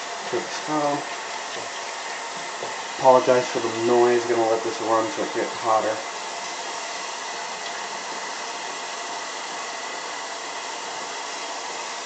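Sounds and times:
tap water running into sink: 0:00.0 - 0:12.0.

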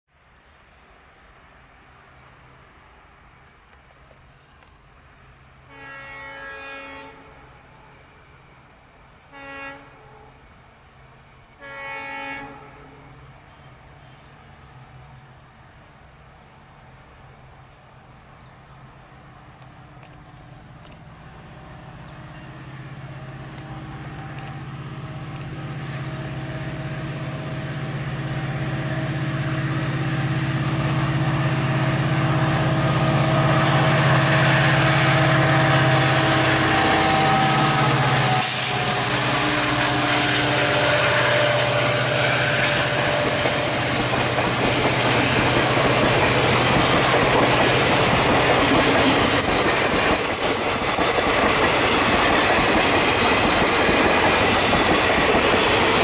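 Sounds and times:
locomotive horn blasts: 0:05.7 - 0:07.6, 0:09.3 - 0:10.4, 0:11.6 - 0:13.1, 0:25.3 - 0:44.2
locomotive engine approaching: 0:13.0 - 0:56.0.

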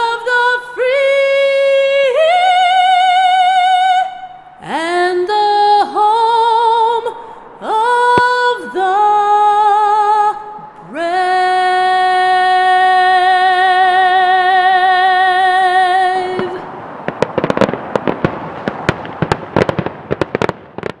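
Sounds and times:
woman singing long note: 0:00.0 - 0:16.7
fireworks crackling and popping: 0:07.6 - 0:08.9, 0:16.1 - 0:21.0.

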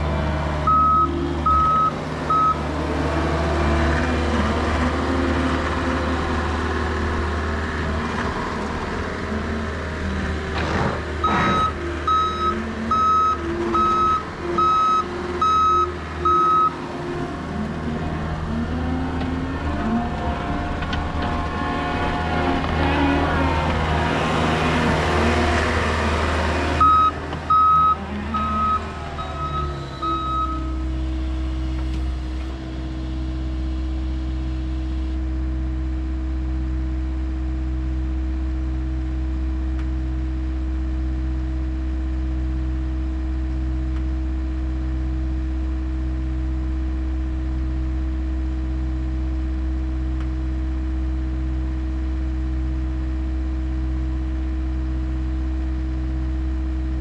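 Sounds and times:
diesel engine idling: 0:00.0 - 0:57.0
backup alarm beeping: 0:00.7 - 0:02.6, 0:11.2 - 0:16.8.

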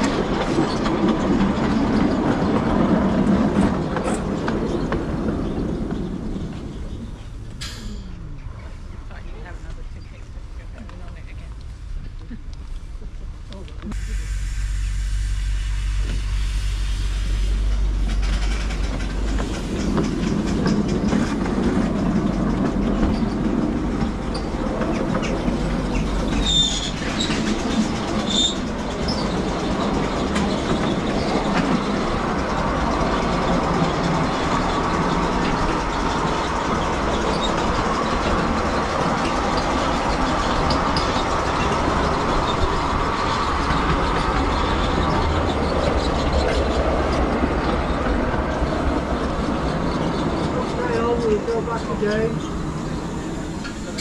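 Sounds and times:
train wheels clattering: 0:00.0 - 0:13.8, 0:17.1 - 0:54.0.

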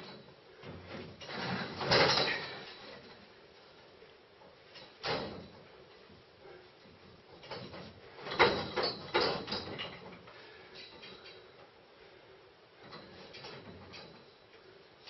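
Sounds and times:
metal scaffolding tubes knocking: 0:07.4 - 0:10.1.

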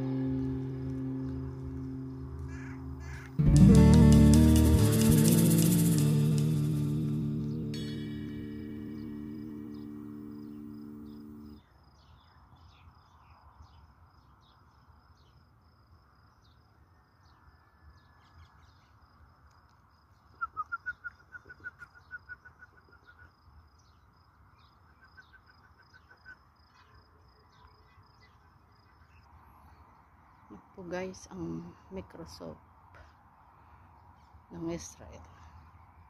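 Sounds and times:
background music: 0:00.0 - 0:11.6
bird call notes: 0:00.0 - 0:11.6
insects chirping: 0:00.0 - 0:18.2, 0:18.8 - 0:30.5.

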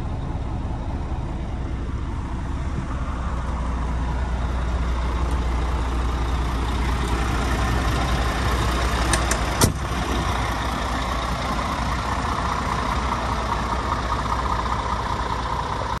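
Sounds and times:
diesel truck engine idling: 0:00.0 - 0:16.0
sharp thump: 0:09.2 - 0:09.8.

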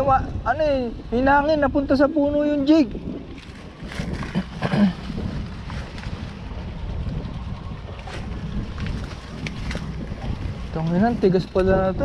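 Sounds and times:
wind buffeting microphone: 0:00.0 - 0:12.0
leaves and twigs rustling: 0:03.3 - 0:06.8.

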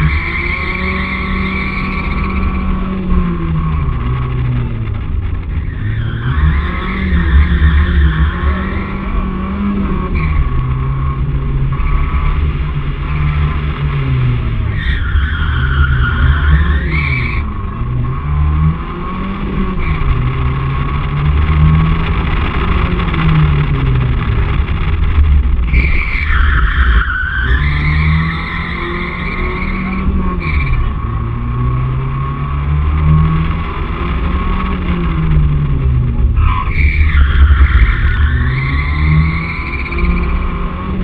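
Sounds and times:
car engine revving: 0:00.0 - 0:41.0
tyre squeal: 0:25.7 - 0:30.8, 0:36.4 - 0:40.4.

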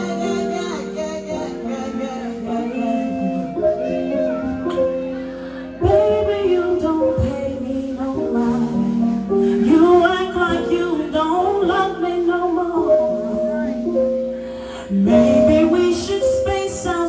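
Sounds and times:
instrumental accompaniment: 0:00.0 - 0:17.0
person singing: 0:00.0 - 0:17.0.

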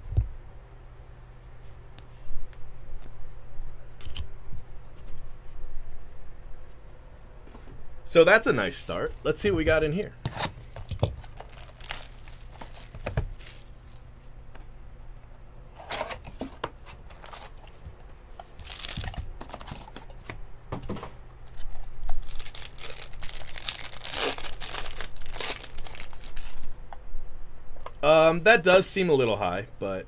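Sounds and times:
card pack wrapper tearing and crinkling: 0:10.3 - 0:14.2, 0:17.0 - 0:17.6, 0:18.5 - 0:19.9, 0:22.0 - 0:26.6.

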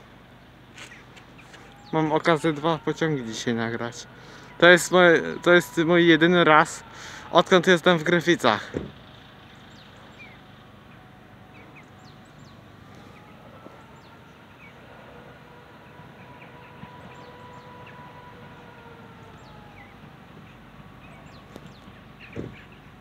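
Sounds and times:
birds chirping: 0:00.0 - 0:23.0
distant train whine: 0:00.0 - 0:23.0.

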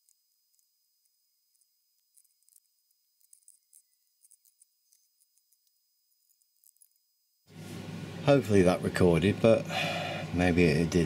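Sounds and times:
faint high-pitched ticks: 0:00.0 - 0:07.1.

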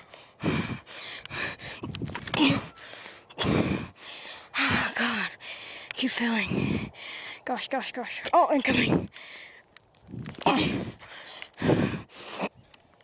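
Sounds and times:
person breathing hard: 0:00.0 - 0:07.5, 0:09.0 - 0:09.7, 0:10.5 - 0:12.6.

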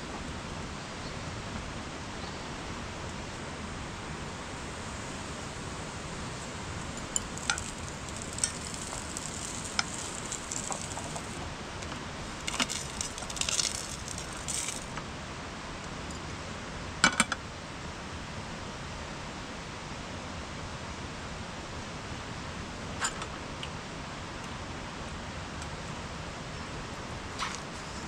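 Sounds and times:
small hard objects clinking: 0:04.6 - 0:15.0.

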